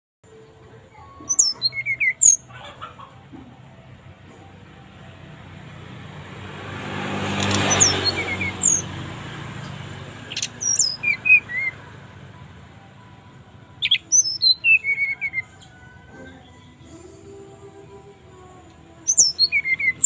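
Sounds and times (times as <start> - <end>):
bird singing whistled notes: 1.2 - 2.5, 7.4 - 9.0, 9.6 - 11.9, 13.8 - 15.8, 19.1 - 20.0.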